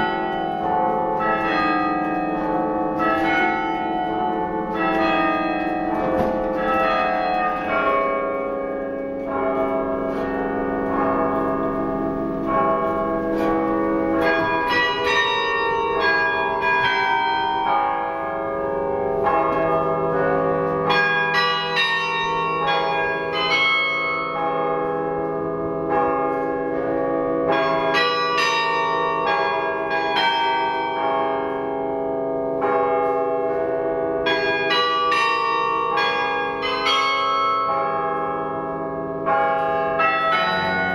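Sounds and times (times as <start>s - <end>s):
carillon bells playing music: 0.0s - 24.6s.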